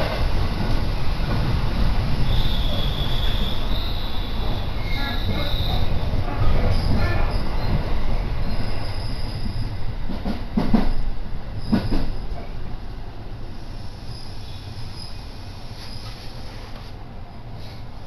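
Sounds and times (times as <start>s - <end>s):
electric train rumble: 0.0s - 18.0s
faint wheel squeal: 2.3s - 5.9s, 14.0s - 16.7s
train knocks: 9.4s - 12.2s.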